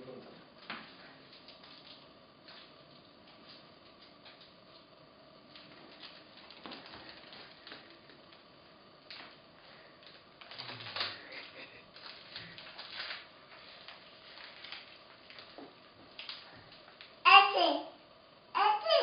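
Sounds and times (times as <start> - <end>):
plastic wrappers crinkling: 5.5 - 8.4, 9.1 - 17.2.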